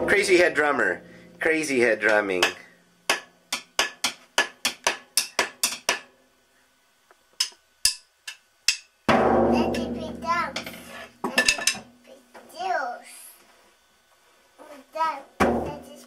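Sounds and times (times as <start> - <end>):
drum and cymbal ringing: 0.0 - 2.6, 8.7 - 10.8
child's voice: 9.5 - 13.4, 14.6 - 16.0.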